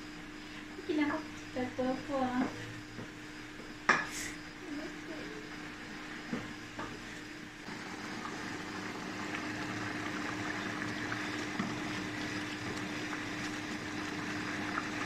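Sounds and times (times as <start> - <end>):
stew simmering hiss: 3.9 - 15.0.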